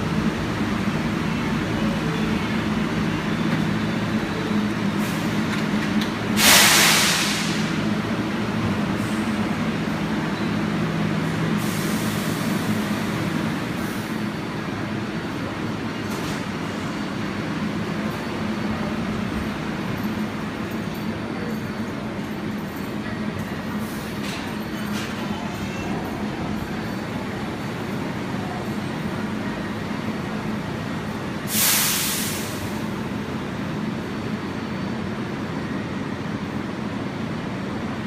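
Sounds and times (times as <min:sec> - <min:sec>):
subway train motors humming: 0:00.0 - 0:38.0
air hissing: 0:06.3 - 0:07.9, 0:31.4 - 0:32.9.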